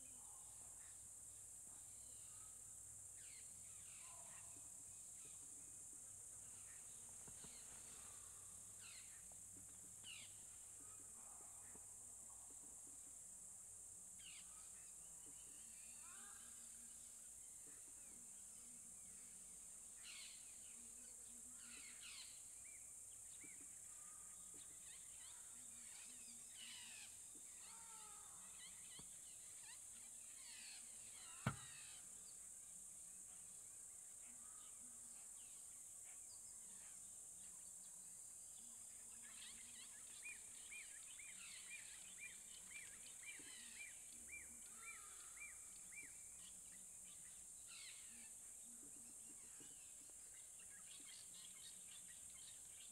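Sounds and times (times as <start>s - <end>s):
insect drone: 0.0s - 52.9s
bird calls: 6.6s - 9.3s, 24.5s - 32.2s.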